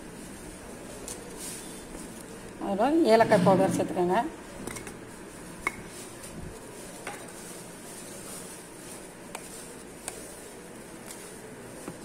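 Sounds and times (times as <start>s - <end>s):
dry powder rustling in bowl: 5.0s - 12.0s.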